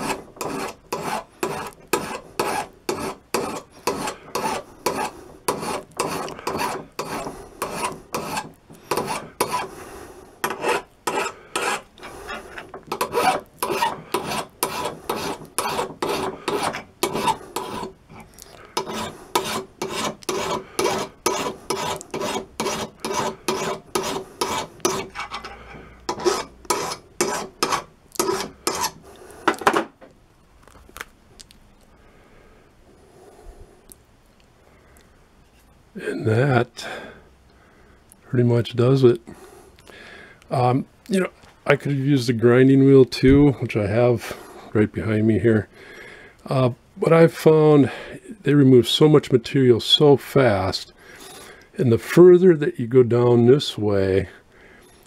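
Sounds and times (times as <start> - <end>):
hand file rasping on steel: 0.0 - 9.7, 10.4 - 29.0.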